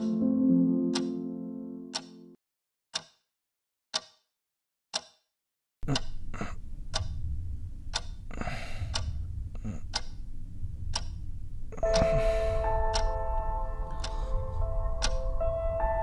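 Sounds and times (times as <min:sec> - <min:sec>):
alarm clock ticking: 0:00.0 - 0:00.2, 0:00.9 - 0:01.3, 0:01.9 - 0:02.4, 0:05.9 - 0:06.3, 0:06.9 - 0:07.3, 0:07.9 - 0:08.2, 0:08.9 - 0:09.2, 0:09.9 - 0:10.2, 0:10.9 - 0:11.2, 0:11.8 - 0:16.0
held musical tones: 0:00.0 - 0:02.3, 0:11.6 - 0:16.0
low rumbling drone: 0:05.8 - 0:16.0.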